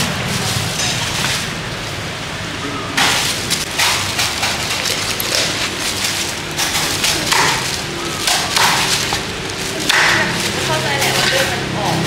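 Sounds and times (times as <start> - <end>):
cleaver cutting roast duck: 3.0 - 11.5.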